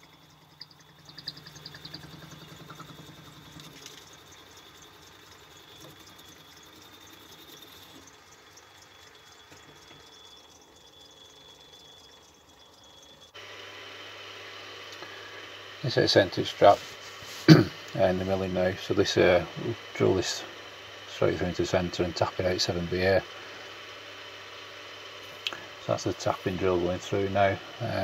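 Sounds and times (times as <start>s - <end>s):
light regular ticking: 0.0s - 13.4s
lathe high whine: 0.0s - 28.0s.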